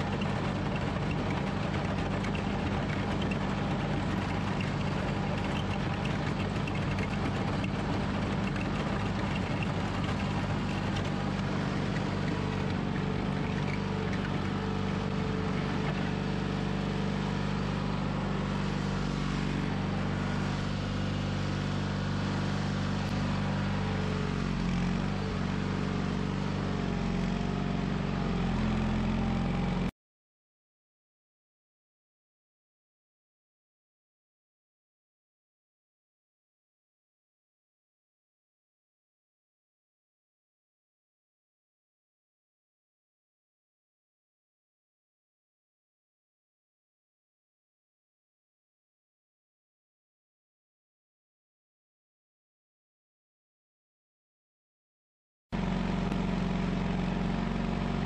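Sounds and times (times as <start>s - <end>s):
garden tractor engine running: 0.0s - 29.9s, 55.6s - 58.0s.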